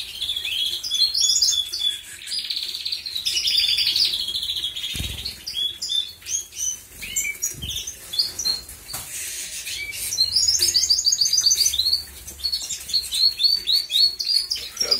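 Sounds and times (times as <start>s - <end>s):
canaries chirping: 0.0s - 14.9s
bird splashing in water dish: 4.9s - 5.7s.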